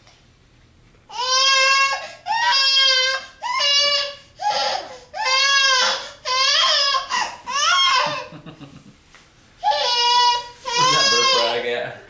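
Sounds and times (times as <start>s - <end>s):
baby whiny crying: 1.1s - 8.4s, 9.6s - 11.7s.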